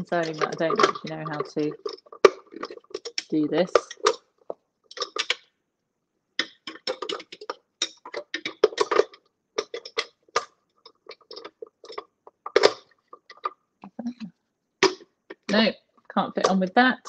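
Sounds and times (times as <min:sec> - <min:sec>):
plastic parts clicking and rattling: 0:00.0 - 0:05.5, 0:06.4 - 0:13.6.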